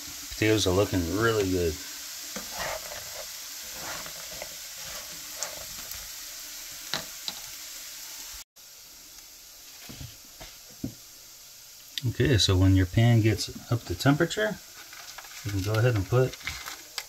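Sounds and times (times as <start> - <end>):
potatoes sizzling in oil: 0.0 - 17.0
wooden spatula scraping: 2.3 - 6.1, 13.4 - 17.0.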